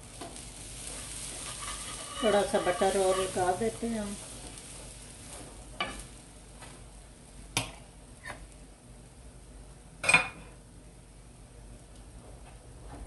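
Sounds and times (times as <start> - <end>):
faint frying sizzle: 0.0 - 13.0
metal utensil tapping on griddle: 1.3 - 3.6, 5.8 - 6.1.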